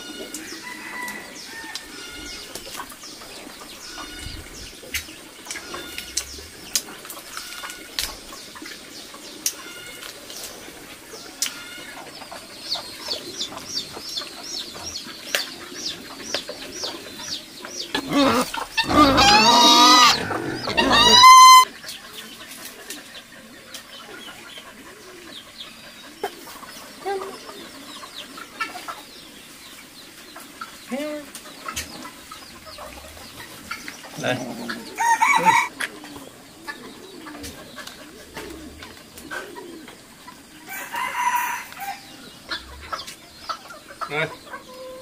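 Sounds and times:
fowl chirping and clucking: 0.0 - 45.0
guineafowl harsh cries: 17.9 - 21.7, 34.2 - 35.8.

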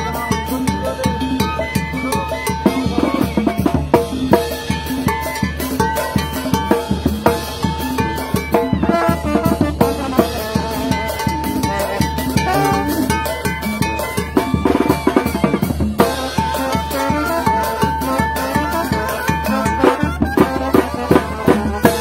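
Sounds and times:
brass band playing: 0.0 - 22.0
snare and bass drum beat: 0.0 - 22.0
trumpets holding long notes: 8.8 - 13.3, 16.0 - 22.0.

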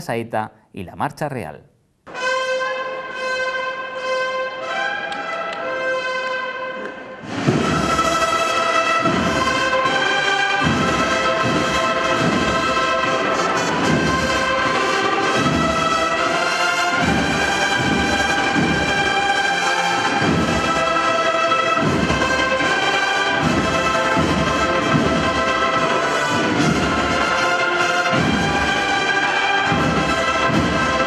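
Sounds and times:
slow heavy drum beat: 7.4 - 19.4.

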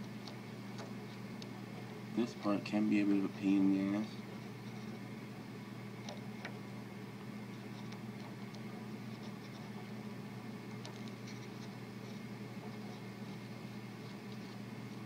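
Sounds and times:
steady low hum: 0.0 - 15.0
soldering iron scratching and ticking: 7.5 - 9.9.

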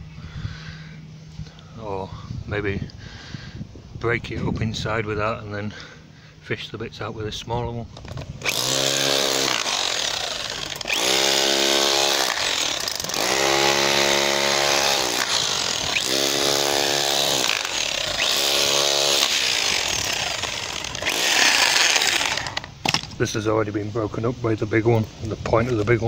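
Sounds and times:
hammer drill chiselling concrete: 8.4 - 22.7.

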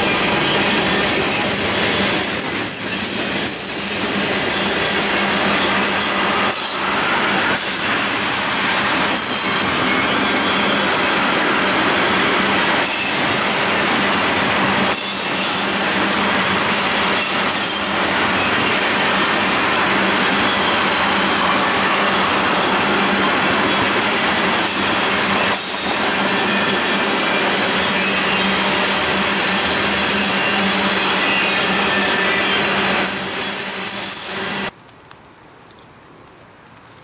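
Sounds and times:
train wheels rattling on rails: 0.0 - 34.7
wheel squeal: 4.6 - 8.2, 17.0 - 22.6, 23.2 - 34.6.

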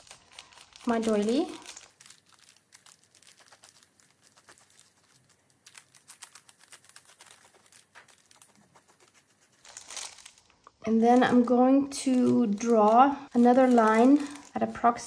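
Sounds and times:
pencil scratching on paper: 8.3 - 9.8.

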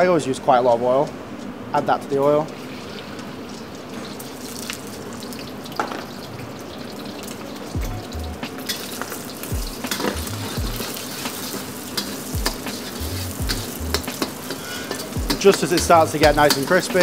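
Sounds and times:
eggs sizzling in hot oil: 2.3 - 17.0
metal ladle scraping wok: 8.6 - 17.0
wok thuds: 12.0 - 16.8.

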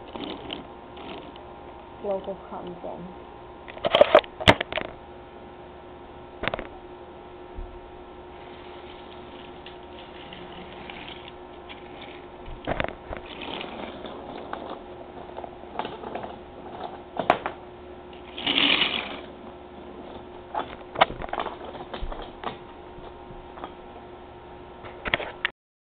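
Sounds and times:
toy train motor hum: 0.0 - 1.4, 8.4 - 16.0, 18.1 - 19.4.

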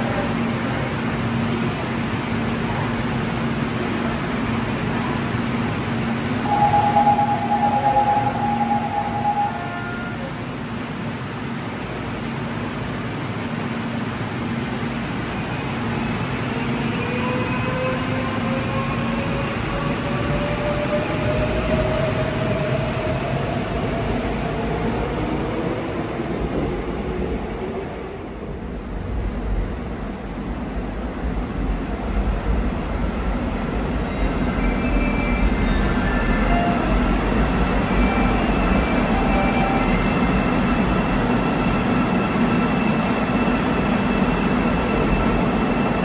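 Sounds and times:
electric train rumble: 0.0 - 46.0
electronic beep: 6.4 - 9.6.

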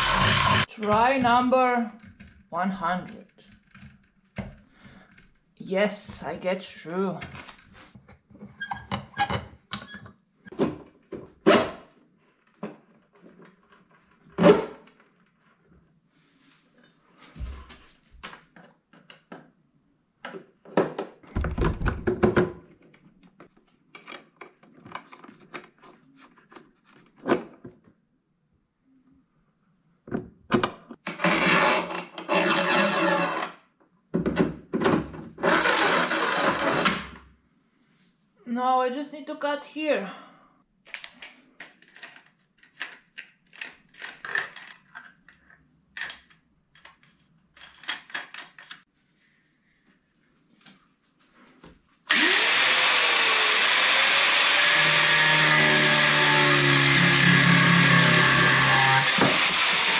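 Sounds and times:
metal rod scraping through plastic: 31.1 - 33.6.

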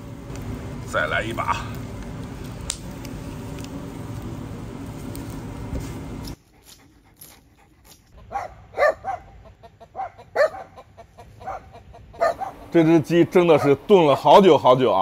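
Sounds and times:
wood fire rumbling and crackling: 0.0 - 8.2
sharp animal calls: 8.2 - 12.9.

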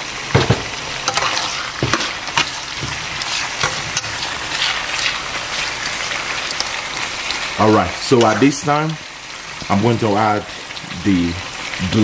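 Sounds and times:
food sizzling in a frying pan: 0.0 - 12.0
metal spoon scraping a pan: 1.0 - 6.8.

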